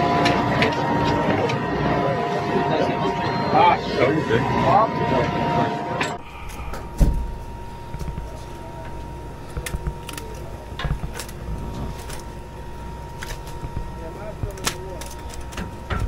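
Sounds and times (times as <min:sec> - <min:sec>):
boat engine rumble: 0:05.9 - 0:16.0
heavy thump: 0:06.6 - 0:08.2.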